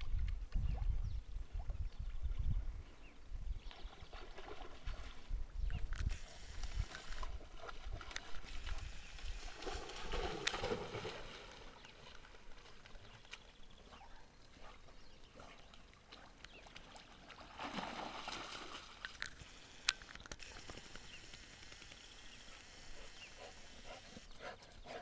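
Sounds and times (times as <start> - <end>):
dog splashing through water: 9.6 - 11.8, 16.8 - 19.1.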